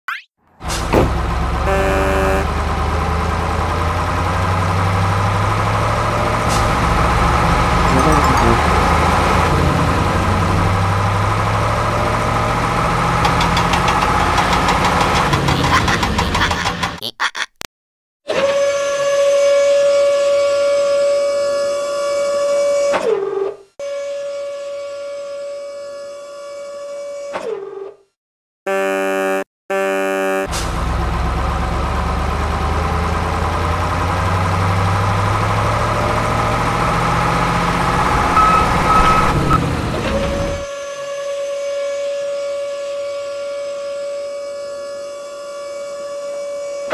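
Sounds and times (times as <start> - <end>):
brief high tone: 7.9 - 9.4, 37.9 - 39.6.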